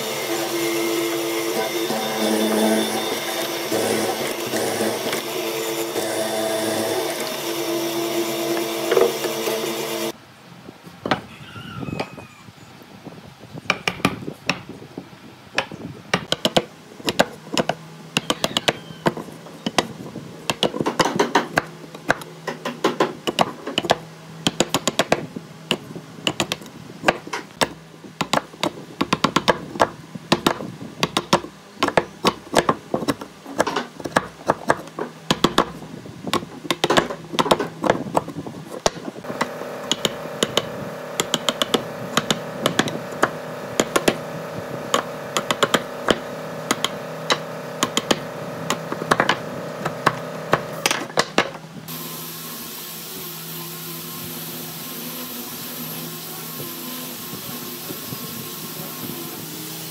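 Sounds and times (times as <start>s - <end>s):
chisel paring wood: 13.7s - 14.7s, 15.6s - 44.2s, 44.9s - 51.6s
steady hum: 19.2s - 59.9s.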